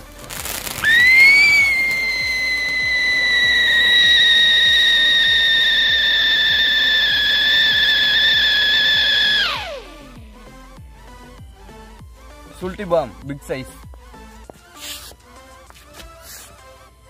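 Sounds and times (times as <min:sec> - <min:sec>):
firework hissing: 0:00.0 - 0:10.2, 0:14.8 - 0:15.2
firework whistle: 0:00.4 - 0:10.2.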